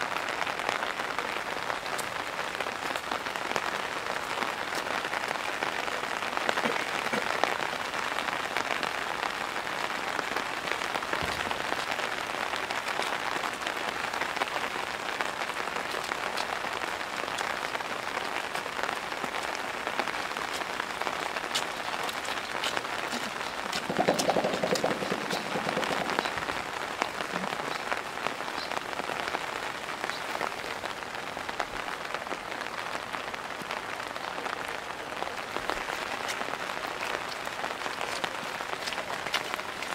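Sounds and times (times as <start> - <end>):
heavy rain pattering: 0.0 - 39.9
gorilla beating chest: 22.1 - 26.5.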